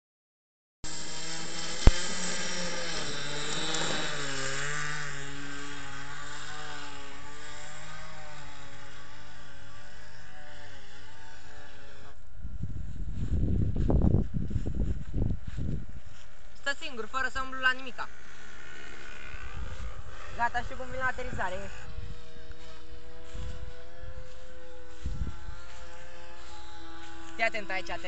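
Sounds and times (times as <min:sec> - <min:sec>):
model airplane engine: 0:00.8 - 0:28.0.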